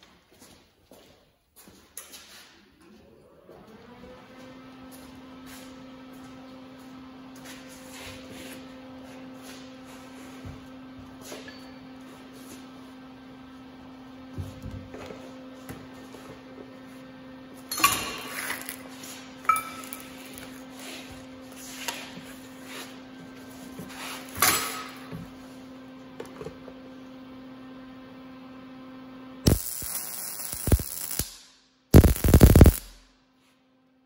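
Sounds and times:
electrical hum: 3.0s - 33.2s
welding arc crackle: 17.8s - 18.9s, 19.5s - 20.6s, 29.4s - 33.1s.

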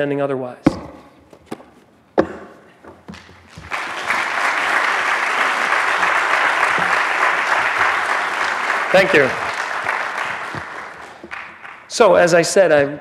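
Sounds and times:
book thumping on wooden lectern: 0.6s - 3.7s
audience applauding: 3.5s - 12.0s.

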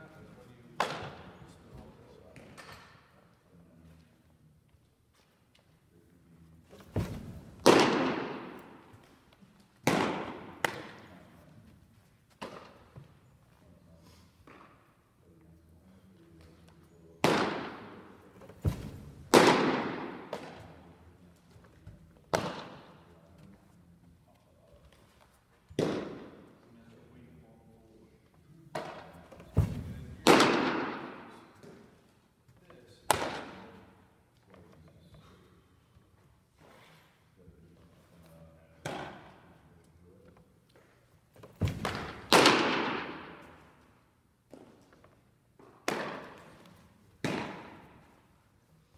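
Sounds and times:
baseballs popping into mitts: 6.7s - 11.1s, 17.2s - 20.8s, 28.7s - 31.8s, 40.7s - 43.8s, 44.5s - 48.2s
ball smacking into mitt: 17.2s - 20.6s, 47.2s - 48.1s.

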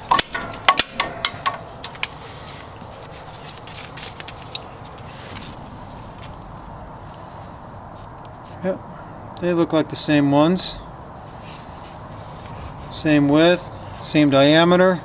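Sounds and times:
small metal parts clinking: 0.0s - 5.2s.

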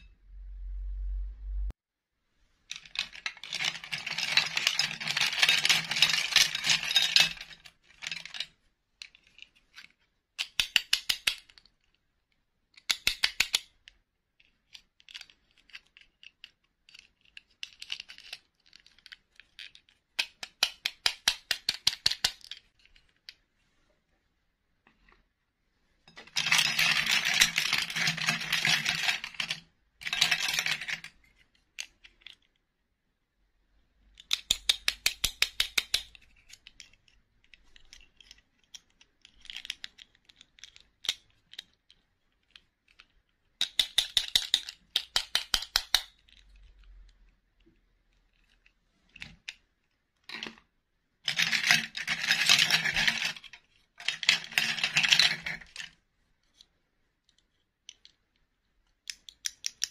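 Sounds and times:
plastic dolls clattering: 2.7s - 11.7s, 26.1s - 32.5s, 47.6s - 56.6s, 57.2s - 59.9s.

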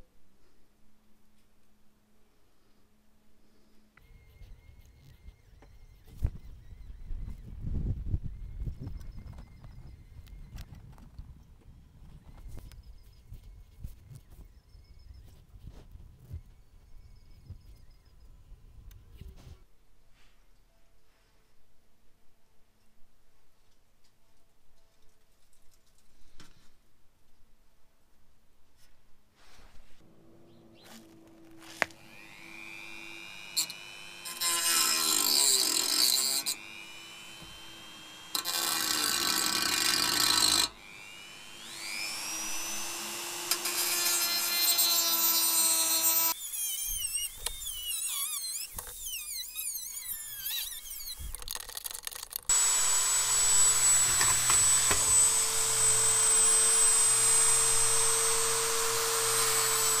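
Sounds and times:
rotary tool motor whine: 4.0s - 7.6s, 31.0s - 60.0s
disc grinding metal: 31.9s - 44.6s, 52.5s - 60.0s.

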